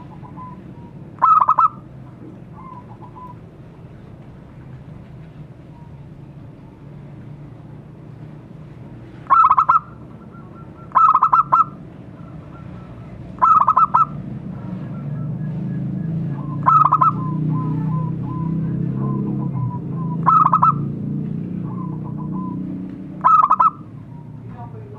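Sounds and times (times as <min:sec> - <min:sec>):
dove staccato cooing: 0:00.0 - 0:03.4, 0:09.3 - 0:20.9, 0:23.2 - 0:24.2
low background rumble: 0:00.0 - 0:24.9.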